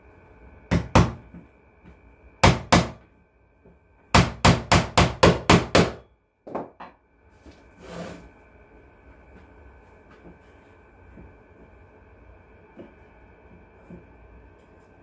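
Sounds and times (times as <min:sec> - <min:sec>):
hammer knocking on wood: 0:04.1 - 0:07.0.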